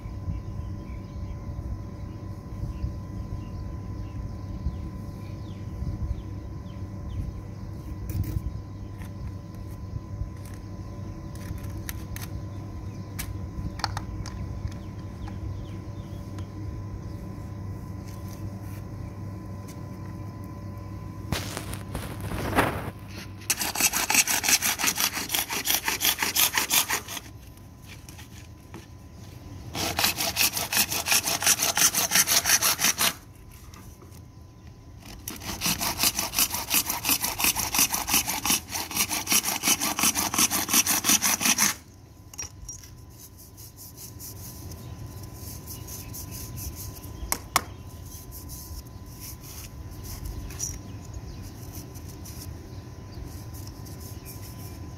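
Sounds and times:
hacksaw sawing plastic pipe: 23.5s - 27.3s, 29.7s - 33.2s, 35.0s - 41.8s.

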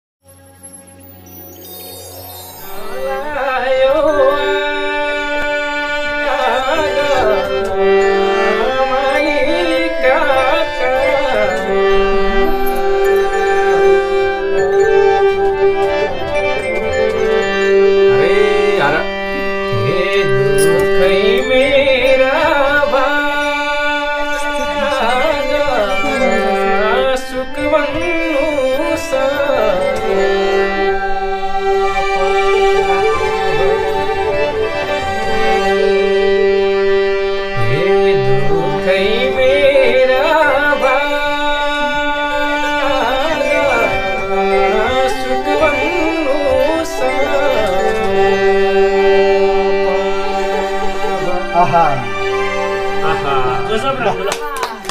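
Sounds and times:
bowed string instrument: 0.2s - 54.9s
steady drone: 0.3s - 54.3s
person singing folk melody: 2.7s - 54.5s
bamboo flute: 31.4s - 34.8s.

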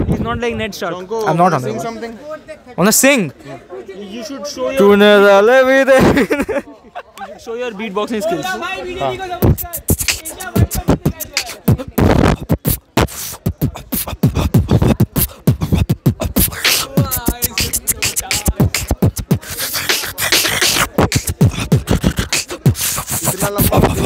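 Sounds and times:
man beatboxing: 9.4s - 24.0s
wavering pitched voice: 9.4s - 24.0s.

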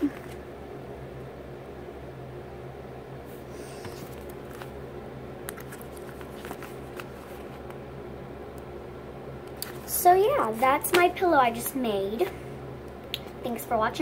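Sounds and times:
steady low hum: 0.0s - 14.0s
paper crinkling and ticking: 5.5s - 7.8s.

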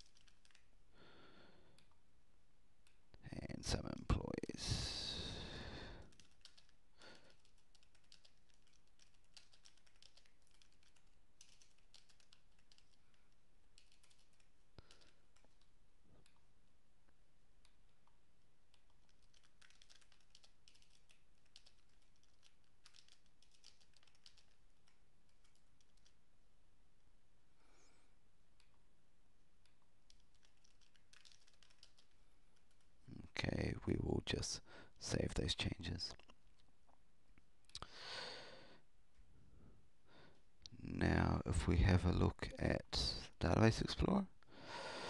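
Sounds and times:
typing on a keyboard: 0.0s - 0.7s, 6.0s - 16.4s, 17.6s - 26.2s, 29.6s - 33.0s.

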